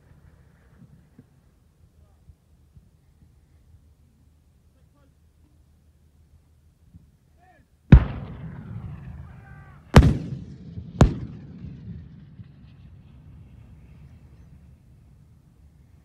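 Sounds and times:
artillery fire booms: 7.9 - 15.2.

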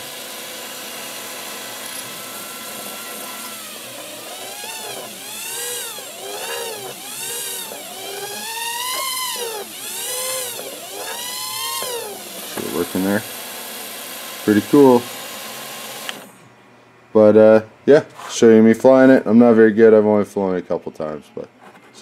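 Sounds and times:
quadcopter motors whining: 0.0 - 16.4.

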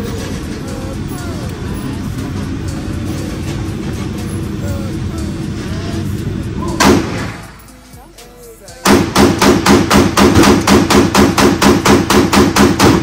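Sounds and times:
pistol gunshots: 6.8 - 7.6, 8.8 - 13.0.

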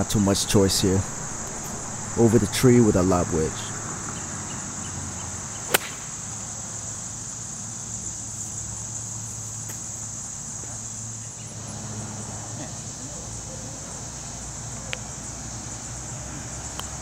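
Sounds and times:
high insect buzz: 0.0 - 17.0
golf ball struck: 1.0 - 4.3, 5.6 - 6.3.

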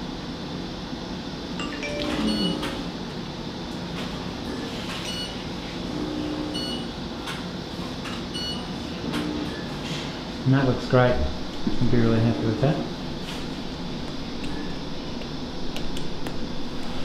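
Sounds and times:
operating room hum: 0.0 - 17.0
short electronic beeps: 1.6 - 2.7.

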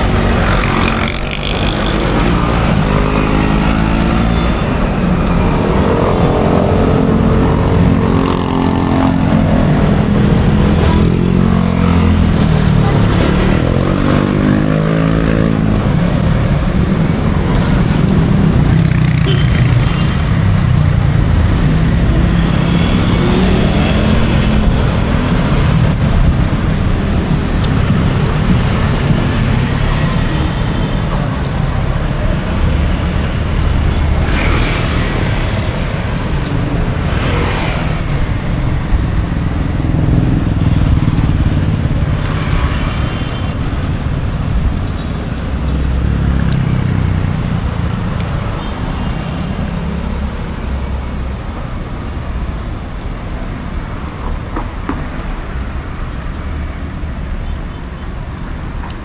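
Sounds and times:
cars and motorcycles passing: 0.0 - 59.0
low traffic rumble: 0.0 - 59.0.

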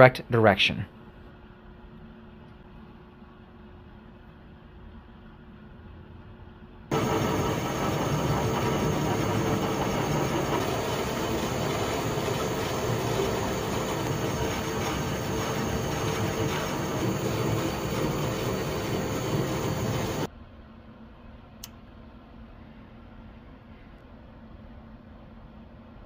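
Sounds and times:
metal lathe running: 6.9 - 20.3.

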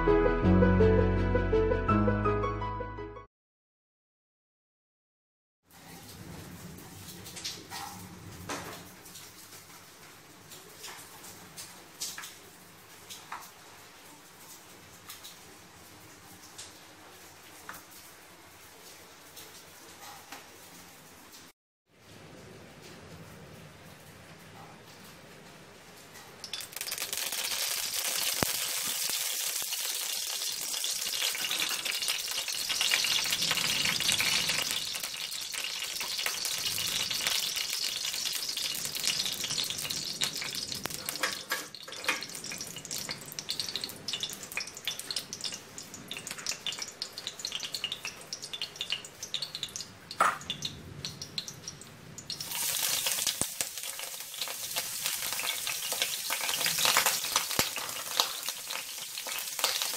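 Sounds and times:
oil sizzling in a wok: 26.4 - 59.9.

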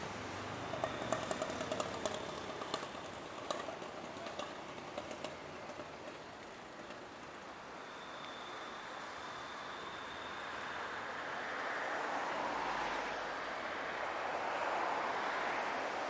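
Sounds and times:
city background hum: 0.0 - 16.0
sharp clicks and rattles: 0.7 - 7.5.

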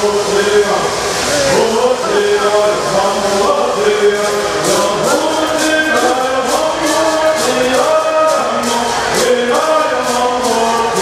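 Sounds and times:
men singing in unison: 1.4 - 11.0
gourd rattles shaken: 2.6 - 11.0.

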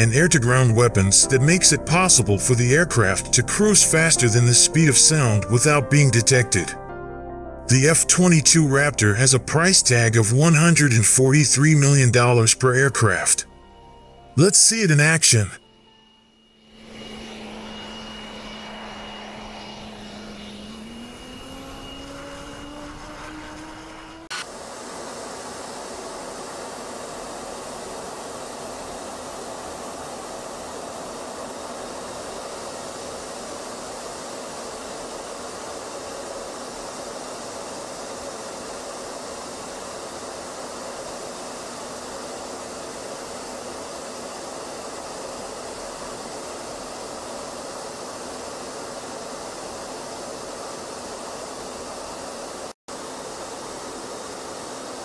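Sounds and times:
jet flight rushing noise: 16.6 - 55.0.

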